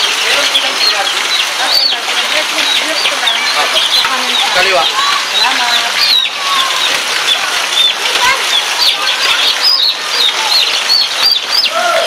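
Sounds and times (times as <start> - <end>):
rain hissing: 0.0 - 12.0
small birds chirping: 0.0 - 12.0.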